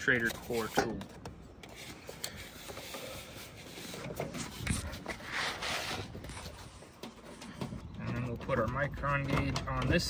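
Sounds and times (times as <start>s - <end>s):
hose rubbing: 1.7s - 7.4s.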